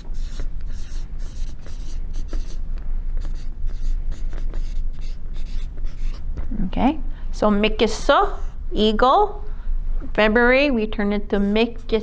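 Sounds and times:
marker scratching on paper: 0:00.0 - 0:02.6, 0:03.2 - 0:06.3
low steady hum: 0:00.0 - 0:12.0.

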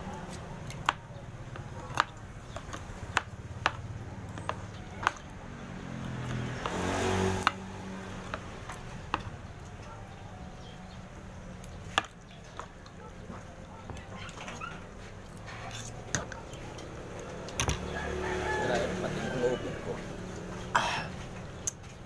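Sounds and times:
engine-like sound: 0:03.9 - 0:10.0, 0:15.5 - 0:21.6.

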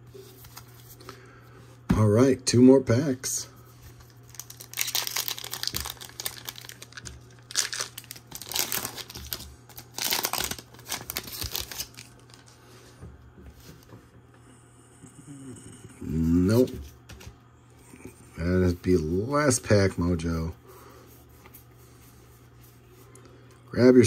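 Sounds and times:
foil wrapper crinkling and tearing: 0:04.0 - 0:12.5.

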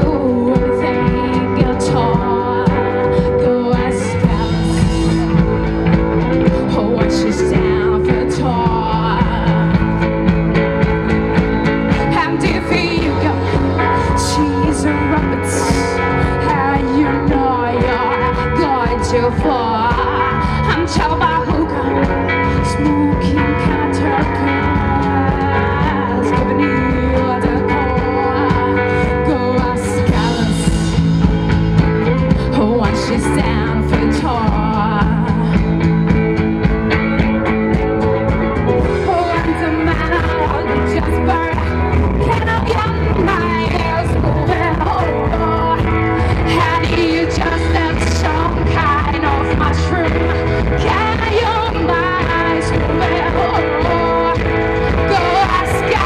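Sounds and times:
bass guitar: 0:00.0 - 0:56.0
drums: 0:00.0 - 0:56.0
electric guitar: 0:00.0 - 0:56.0
keyboards: 0:00.0 - 0:56.0
woman singing: 0:00.0 - 0:56.0.

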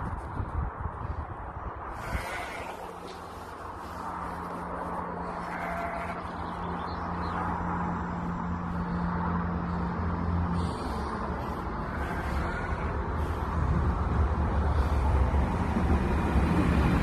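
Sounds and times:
diesel railcar engine humming: 0:00.9 - 0:17.0.

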